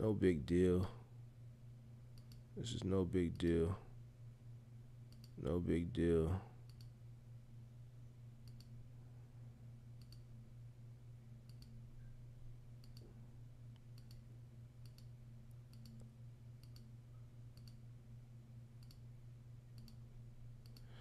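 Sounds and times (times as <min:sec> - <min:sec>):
low steady hum: 0:00.0 - 0:21.0
computer mouse clicking: 0:02.2 - 0:02.4, 0:05.1 - 0:05.4, 0:08.4 - 0:08.7, 0:10.0 - 0:10.3, 0:11.5 - 0:11.8, 0:12.8 - 0:13.1, 0:13.8 - 0:14.2, 0:14.8 - 0:15.1, 0:15.7 - 0:16.9, 0:17.6 - 0:17.8, 0:18.8 - 0:19.0, 0:19.8 - 0:20.0, 0:20.6 - 0:20.9.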